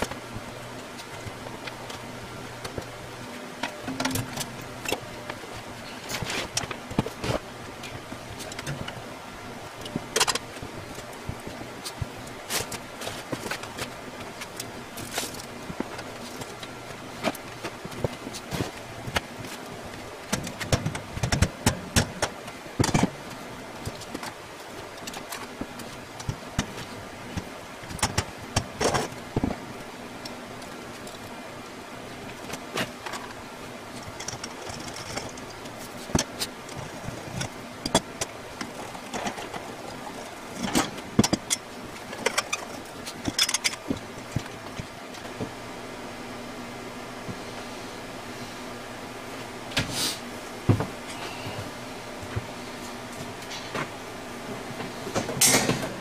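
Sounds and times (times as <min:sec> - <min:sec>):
faint steady hum: 0:00.0 - 0:56.0
wire shelving clanking and rattling: 0:03.6 - 0:05.2, 0:34.0 - 0:45.4, 0:54.9 - 0:56.0.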